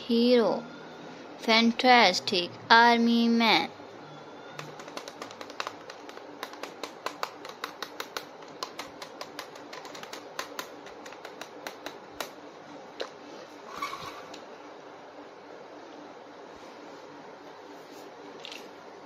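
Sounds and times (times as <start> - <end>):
plastic toy clicks and taps: 4.6 - 12.3.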